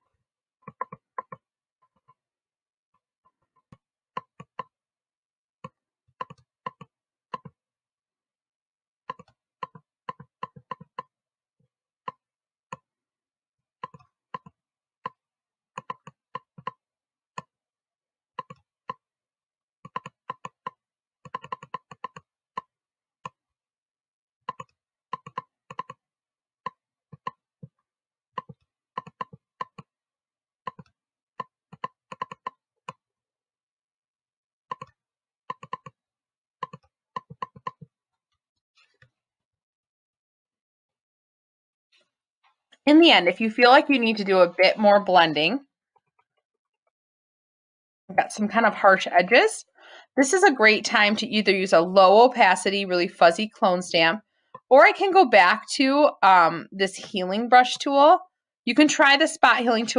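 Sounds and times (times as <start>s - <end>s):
mouse and keyboard clicking: 18.4s - 18.6s, 19.9s - 22.2s, 24.5s - 26.0s, 31.8s - 32.6s, 34.7s - 34.9s, 35.5s - 36.0s, 36.6s - 37.8s.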